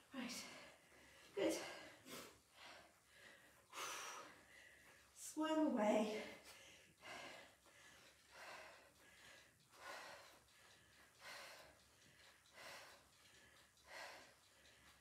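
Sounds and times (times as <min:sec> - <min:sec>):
woman breathing hard: 0:00.3 - 0:05.2, 0:06.2 - 0:15.0.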